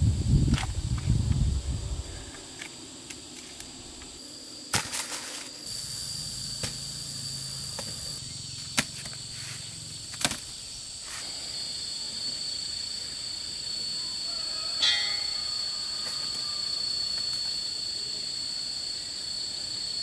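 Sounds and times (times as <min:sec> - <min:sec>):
insects buzzing: 0:00.0 - 0:20.0
sharp cracks or knocks: 0:10.1 - 0:10.5.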